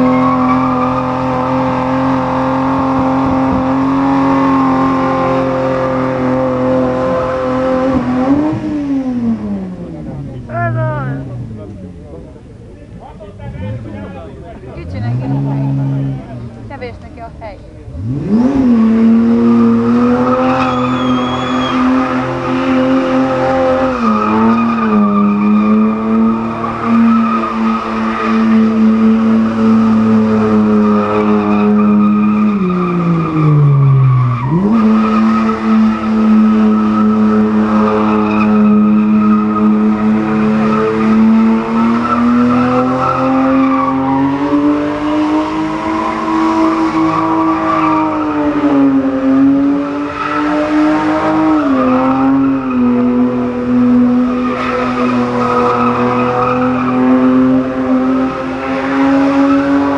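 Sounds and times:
car engine at high revs: 0:00.0 - 0:59.9
tyres squealing: 0:19.6 - 0:29.3.

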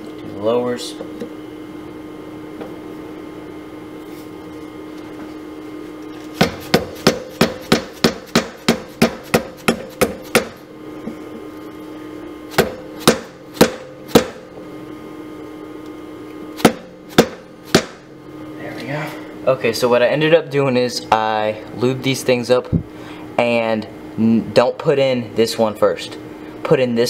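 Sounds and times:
faint steady hum: 0:00.0 - 0:27.0
hammer striking metal: 0:06.4 - 0:10.6, 0:12.6 - 0:14.4, 0:16.6 - 0:18.0.

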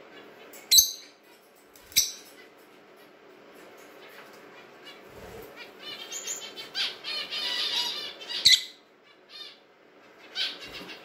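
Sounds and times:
lovebird chirping: 0:00.7 - 0:01.2.

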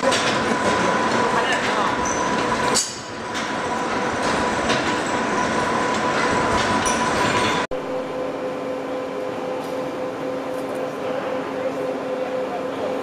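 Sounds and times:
gear-cutting machine clatter and whine: 0:00.0 - 0:07.7.

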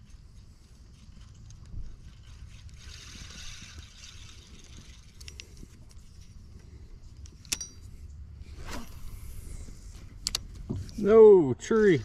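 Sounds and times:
sharp metallic click with ring: 0:07.4 - 0:07.9.

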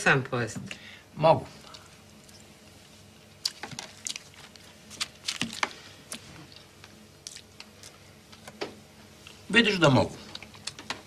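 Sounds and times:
chewing and lip smacks: 0:03.4 - 0:08.6.

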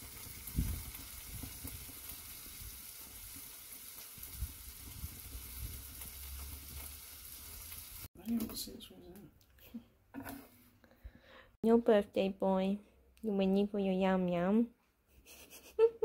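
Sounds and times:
fish sizzling in a frying pan: 0:00.0 - 0:08.1.

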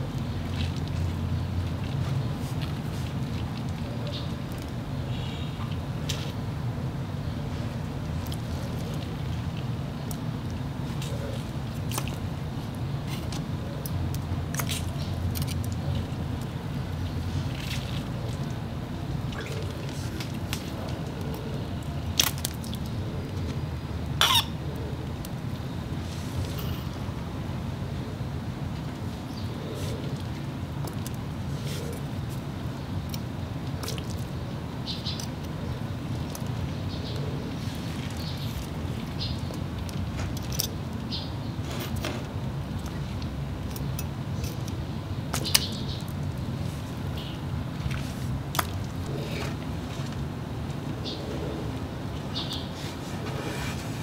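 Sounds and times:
low background hum: 0:00.0 - 0:54.0
steady low rumble: 0:00.0 - 0:54.0
frog crackles and clicks: 0:24.2 - 0:25.4, 0:29.3 - 0:41.3.

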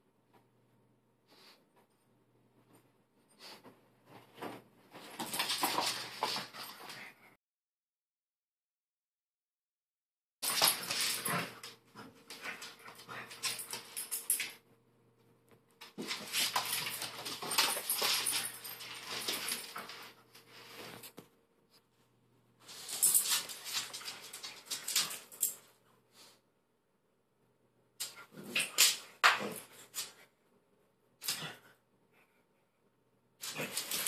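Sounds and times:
dogs playing: 0:03.4 - 0:07.3, 0:10.4 - 0:14.6, 0:15.8 - 0:21.3, 0:22.6 - 0:25.7, 0:33.4 - 0:34.0
dogs scuffling: 0:04.1 - 0:07.0, 0:15.8 - 0:21.2, 0:22.6 - 0:25.6.

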